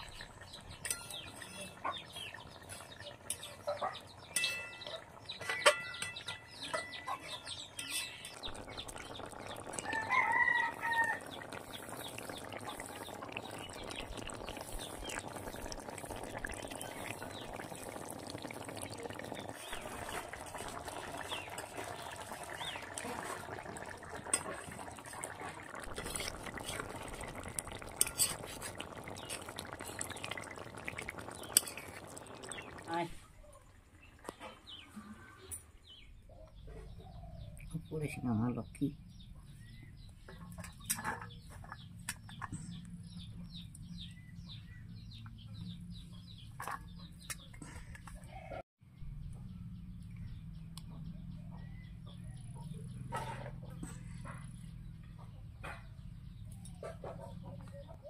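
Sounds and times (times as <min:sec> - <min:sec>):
curry bubbling: 0:00.0 - 0:34.9
ladle scraping iron pot: 0:00.7 - 0:03.7, 0:04.3 - 0:17.9, 0:18.5 - 0:32.8, 0:40.5 - 0:42.6.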